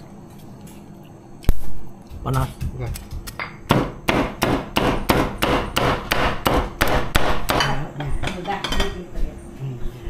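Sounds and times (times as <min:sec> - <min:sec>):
cleaver chopping on wooden board: 0:02.9 - 0:07.7.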